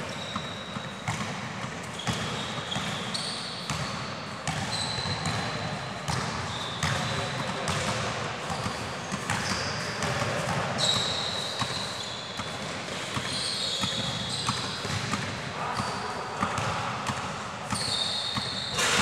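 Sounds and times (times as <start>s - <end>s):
shoes squeaking on floor: 0.0s - 1.2s, 1.8s - 7.4s, 8.4s - 15.0s, 17.7s - 19.0s.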